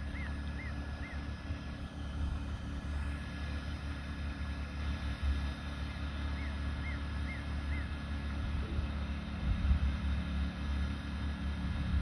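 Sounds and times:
generator and vacuum droning: 0.0 - 12.0.

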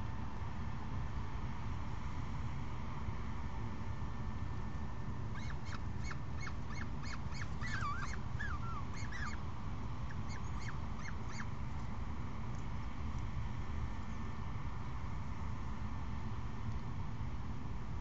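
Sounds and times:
falcons chirping: 5.4 - 9.4, 10.1 - 11.5.

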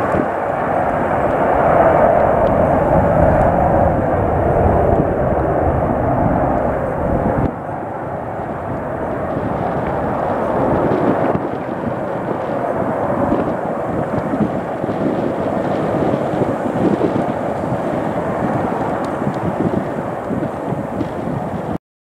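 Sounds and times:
jet airliner climbing: 0.0 - 21.8.

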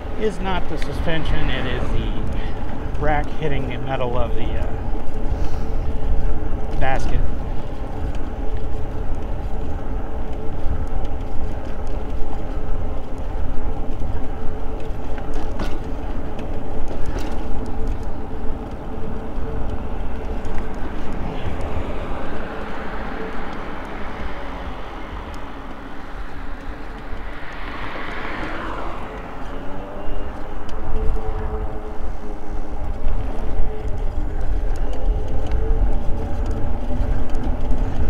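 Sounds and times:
broad rushing noise: 0.0 - 5.9, 18.1 - 34.7
tyre and wind rumble: 0.0 - 38.0.

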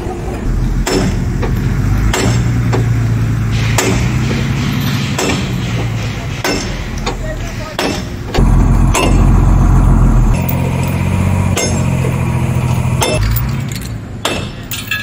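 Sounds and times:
steel bar clanking on metal: 3.5 - 8.2, 8.9 - 9.3, 10.4 - 12.2
engine droning: 8.3 - 14.0.

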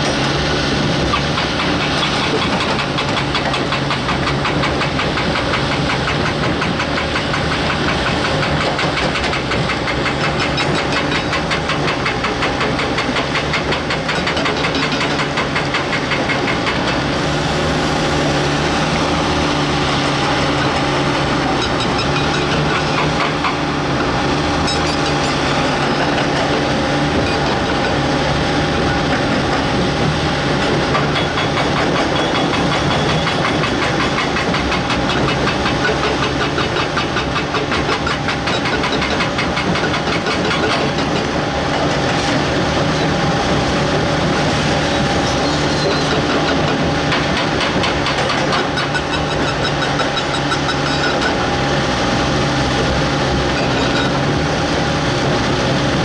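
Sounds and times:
excavator diesel engine running: 0.0 - 56.0
rapid clatter: 1.1 - 17.0.

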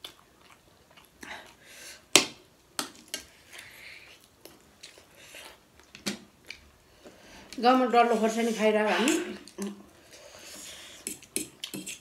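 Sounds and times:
chewing: 0.0 - 1.6, 3.2 - 6.7.

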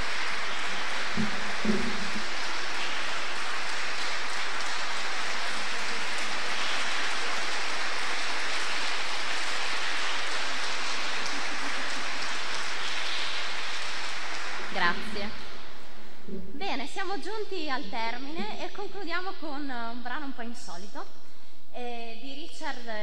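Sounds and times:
audience applause: 0.0 - 15.7.

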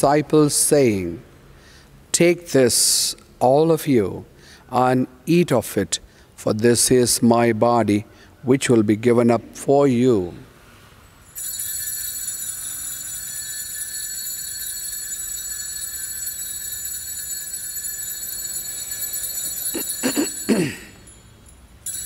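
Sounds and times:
bell ringing: 11.2 - 22.0.

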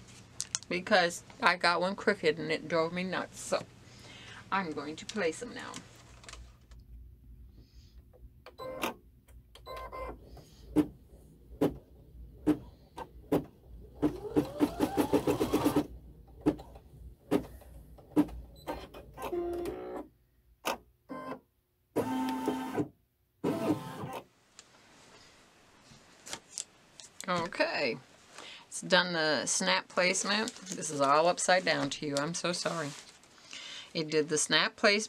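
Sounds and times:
embroidery machine stitching: 12.4 - 20.1.

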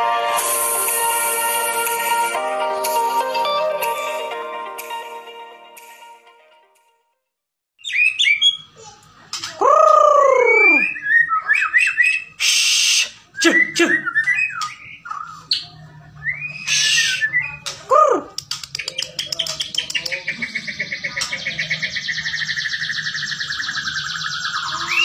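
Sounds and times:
songbird singing: 7.8 - 8.8, 18.5 - 25.0
harsh rasping bird notes: 16.3 - 17.6
long downward bird whistles: 22.2 - 25.0.

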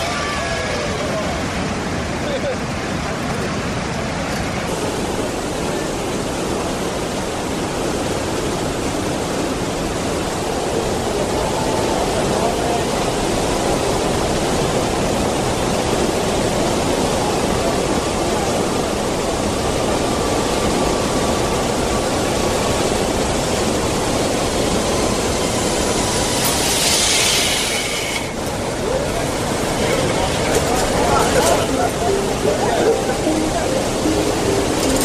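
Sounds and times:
waterfall roaring: 0.0 - 35.0
loud hiss: 24.6 - 28.4.

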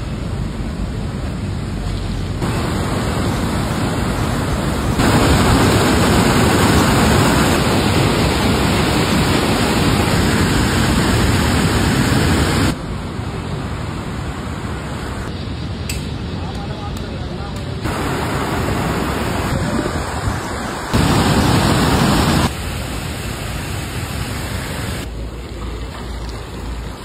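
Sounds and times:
river torrent pouring over boulders: 2.3 - 15.2, 17.8 - 27.0.

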